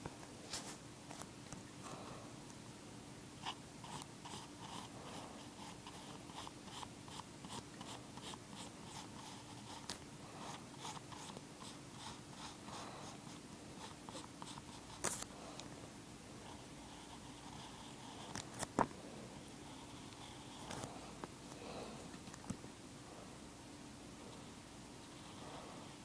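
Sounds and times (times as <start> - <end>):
faint steady hum: 0.0 - 26.0
pencil scratching on paper: 3.4 - 15.2, 16.4 - 18.4.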